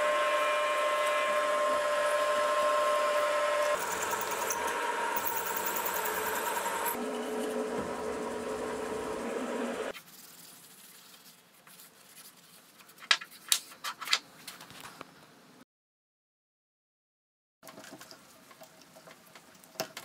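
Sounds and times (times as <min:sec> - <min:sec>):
mill motor drilling metal: 0:00.0 - 0:09.9.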